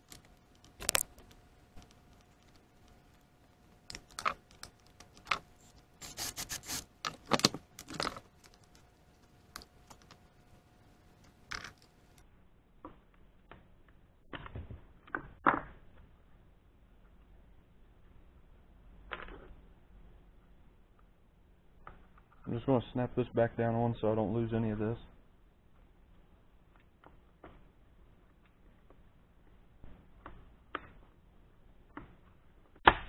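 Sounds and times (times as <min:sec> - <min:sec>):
hand tools clicking and scraping: 0:03.9 - 0:08.7.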